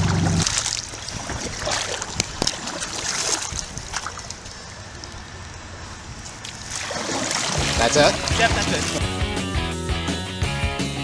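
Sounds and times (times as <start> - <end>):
kayak paddle splashing in water: 0.0 - 5.1, 6.4 - 9.2.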